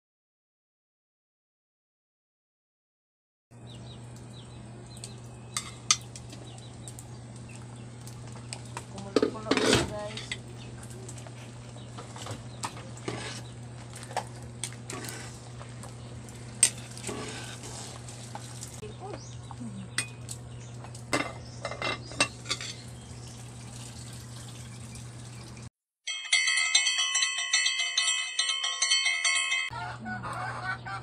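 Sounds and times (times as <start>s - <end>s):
steady low hum: 3.6s - 25.7s
ladle clinking against metal pot: 21.1s - 22.9s.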